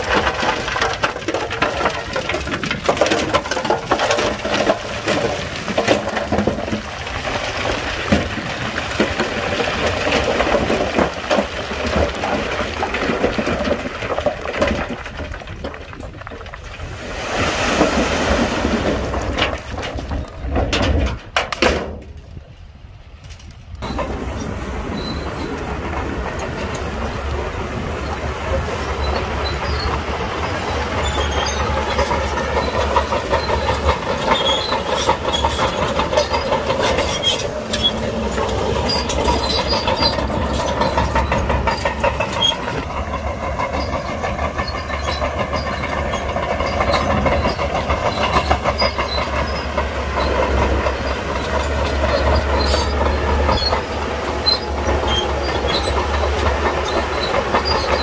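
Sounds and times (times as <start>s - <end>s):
steel tracks clattering: 0.0s - 58.0s
diesel engine droning: 23.4s - 58.0s.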